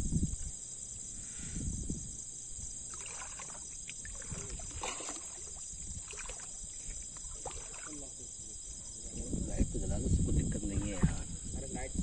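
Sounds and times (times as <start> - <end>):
night insects chirring: 0.0 - 12.0
splashes and knocks in water: 2.9 - 8.2.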